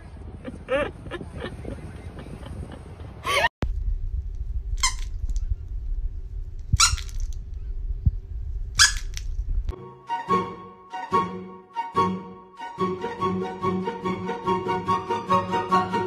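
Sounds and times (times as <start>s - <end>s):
squeaky dog toy squealing: 4.8s - 5.1s, 6.8s - 7.3s, 8.8s - 9.2s
music: 9.7s - 16.0s.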